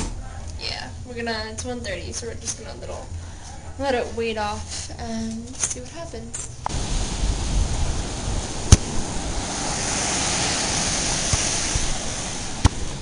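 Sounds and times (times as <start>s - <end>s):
wind: 0.0s - 13.0s
surf on a beach: 6.7s - 13.0s.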